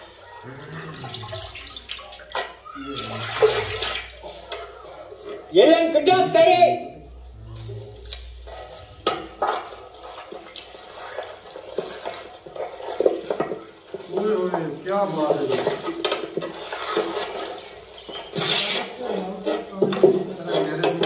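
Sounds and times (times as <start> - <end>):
person speaking: 5.5 - 8.1, 14.1 - 15.9
meat clattering on metal tray: 8.1 - 21.0.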